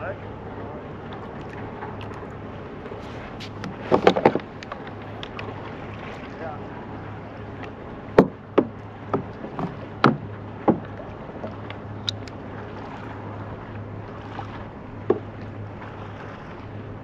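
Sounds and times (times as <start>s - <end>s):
wind and water hum: 0.0s - 17.0s
waves knocking on plastic hull: 3.0s - 6.5s, 7.5s - 13.2s, 14.1s - 16.6s.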